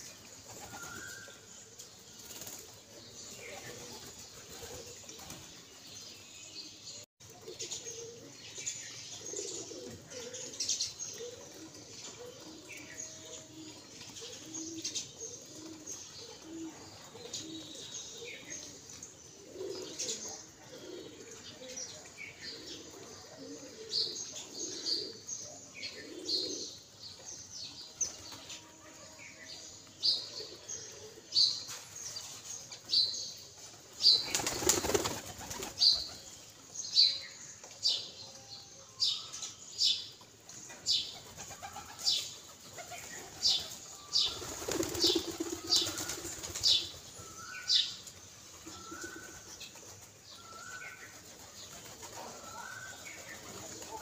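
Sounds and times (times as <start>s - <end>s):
pigeon wings flapping: 34.2s - 35.8s, 44.4s - 46.6s.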